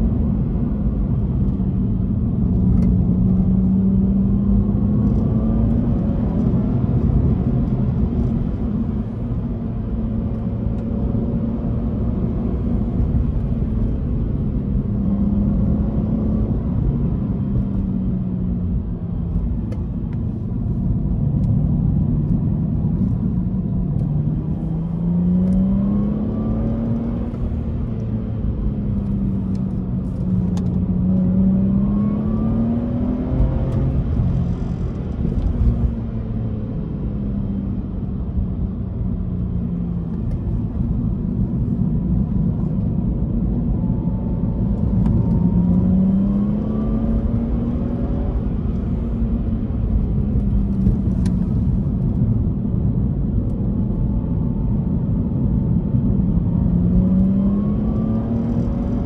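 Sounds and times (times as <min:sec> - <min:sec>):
tyre and road noise: 0:00.0 - 0:59.0
car engine revving: 0:24.0 - 0:36.2, 0:56.3 - 0:59.0.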